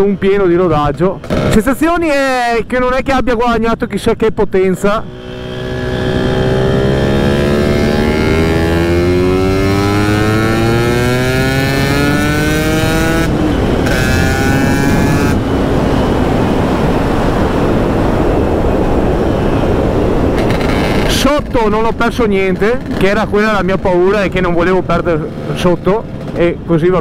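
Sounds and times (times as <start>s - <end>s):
scooter engine accelerating: 5.0s - 16.2s.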